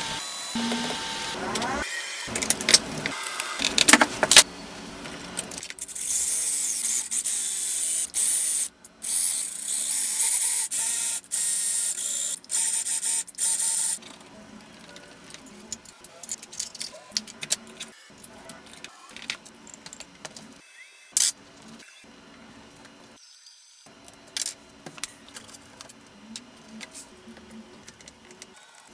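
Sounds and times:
small parts clicking and knocking: 14.8s - 20.5s.

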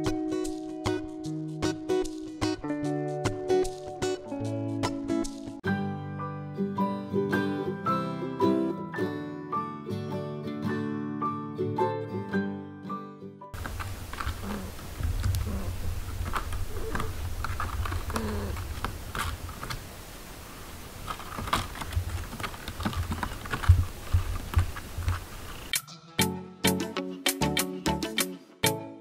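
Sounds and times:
baby monkey sucking bottle: 13.6s - 19.0s.

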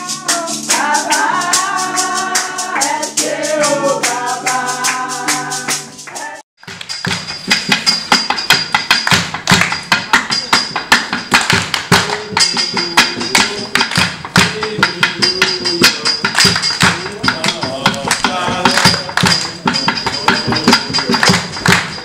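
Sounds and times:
group worship singing: 0.0s - 6.4s, 11.9s - 22.0s
fast hand claps: 4.4s - 14.6s, 15.3s - 22.0s.

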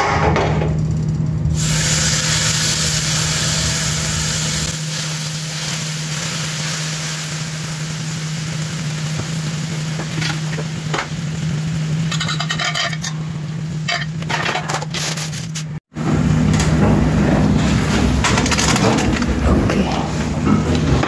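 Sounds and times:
skewers sizzling on griddle: 1.6s - 12.6s.

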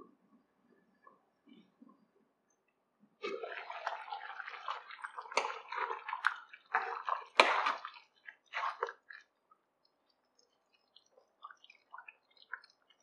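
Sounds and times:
spatula stirring thick gravy: 3.2s - 13.0s.

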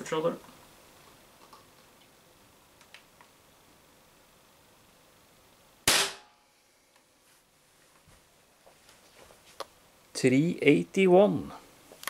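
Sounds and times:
pistol pop: 5.9s - 6.3s.

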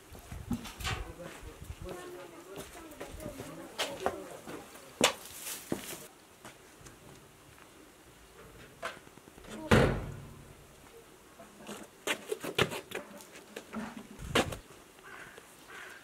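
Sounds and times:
metal door banging shut: 9.6s - 10.5s.

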